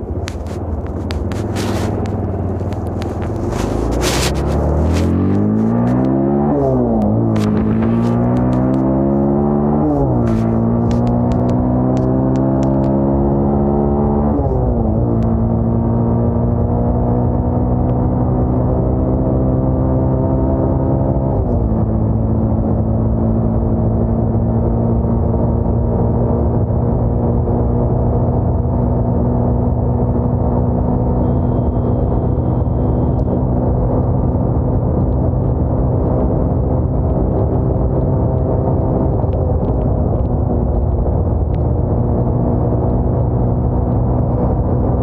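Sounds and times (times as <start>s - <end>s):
motorcycle engine running: 0.0s - 14.0s, 28.4s - 45.0s.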